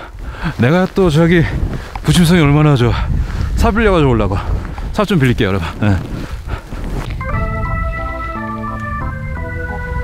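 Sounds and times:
low rumble: 7.1 - 8.4
organ-like keyboard chords: 7.2 - 10.0.

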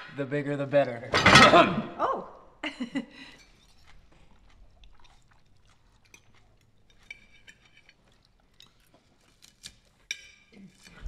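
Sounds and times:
cutlery clinking on plates: 1.1 - 1.7, 6.1 - 8.0, 10.0 - 11.0
soft chewing: 2.9 - 11.0.

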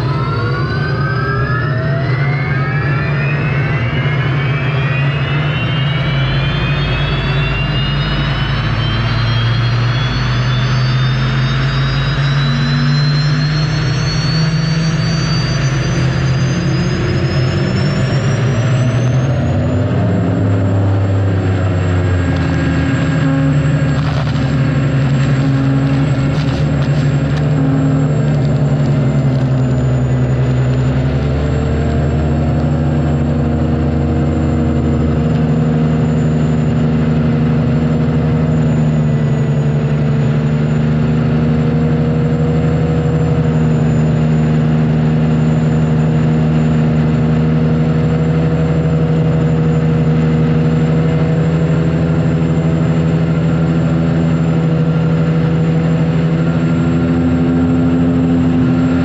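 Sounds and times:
high turbine whine: 0.0 - 59.0
turbine engine drone: 0.0 - 59.0.

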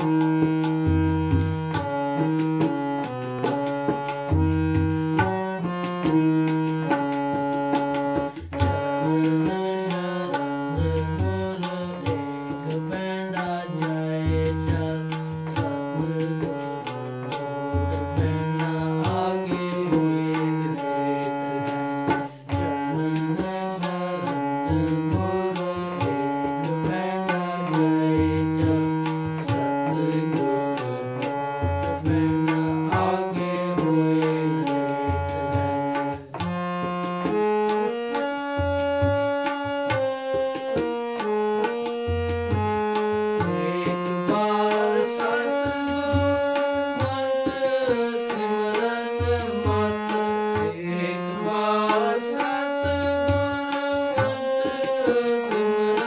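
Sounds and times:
harmonium melody: 0.0 - 56.0
tabla drumming: 0.0 - 56.0.

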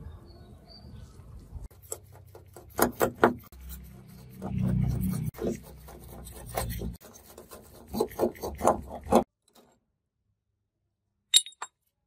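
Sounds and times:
screwdriver scraping metal: 1.7 - 9.7.

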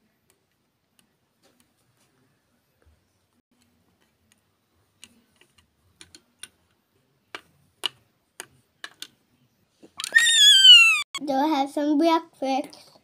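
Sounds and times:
plastic toy bricks clicking: 7.3 - 9.2.

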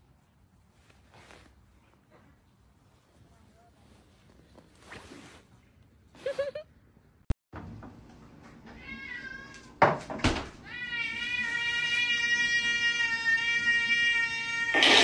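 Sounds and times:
cat meowing: 8.7 - 9.8, 10.6 - 15.0.

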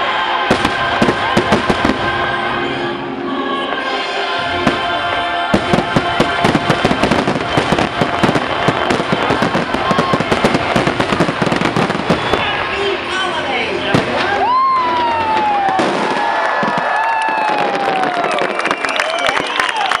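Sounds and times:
loud show music: 0.0 - 15.8.

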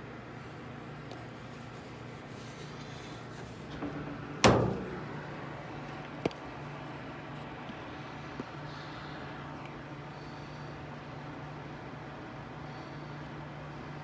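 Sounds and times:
steady low hum: 0.0 - 14.0
loud knock in dryer: 3.8 - 5.3.

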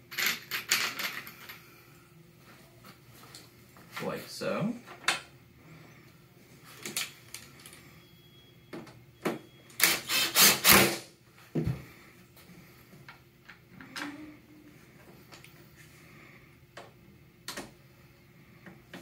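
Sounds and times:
cordless drill driving screw: 9.8 - 11.0.

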